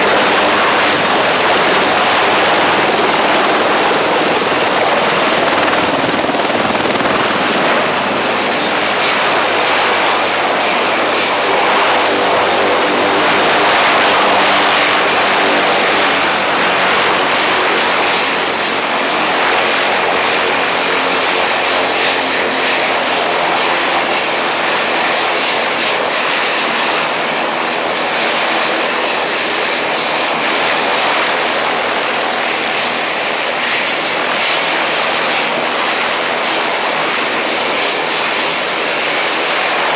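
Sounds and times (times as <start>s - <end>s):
helicopter running: 0.0s - 39.9s.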